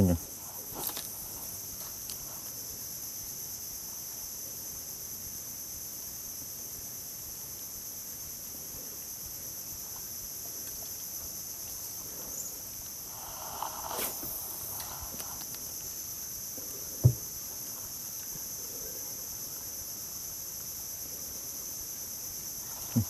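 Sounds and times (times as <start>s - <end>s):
insects shrilling: 10.2s - 23.0s.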